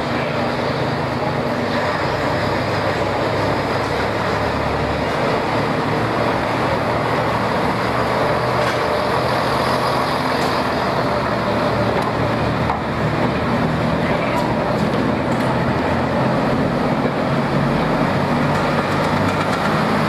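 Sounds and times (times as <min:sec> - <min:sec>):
diesel train engines humming: 0:00.0 - 0:20.0.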